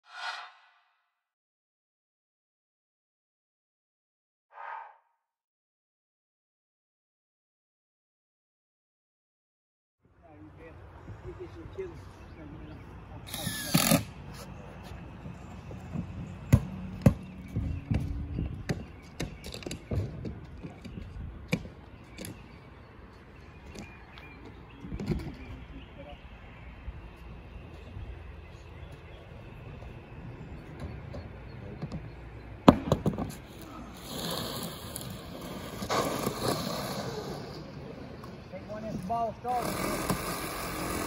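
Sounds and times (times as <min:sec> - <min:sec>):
board scraping over decking: 0:33.3 - 0:37.6, 0:39.6 - 0:41.0.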